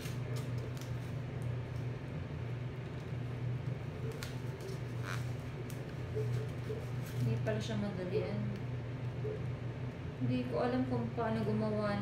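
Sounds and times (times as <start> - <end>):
low mechanical hum: 0.0 - 12.0
gift wrap crinkling: 2.9 - 7.6.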